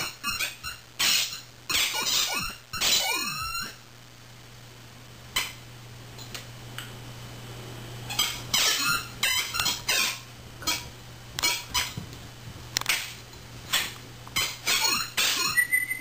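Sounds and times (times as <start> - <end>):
squeaky toy squeaking: 0.0 - 3.8, 8.2 - 10.8, 14.4 - 16.0.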